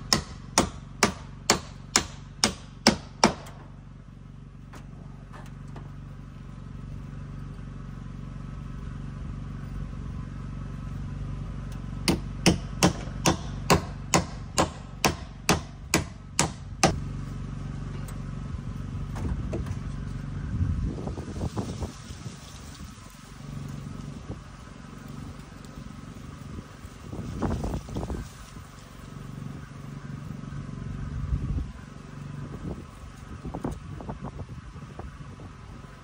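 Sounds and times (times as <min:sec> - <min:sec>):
hammer striking wood: 0:00.0 - 0:03.7, 0:12.1 - 0:17.0
steady low hum: 0:00.0 - 0:21.9.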